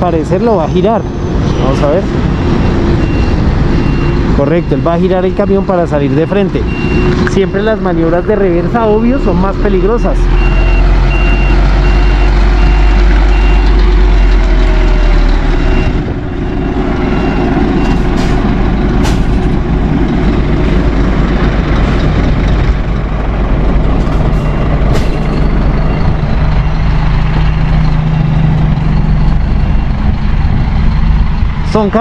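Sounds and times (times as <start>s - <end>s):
diesel truck engine running: 0.0s - 32.0s
reversing alarm beeping: 0.2s - 19.1s, 24.0s - 31.9s.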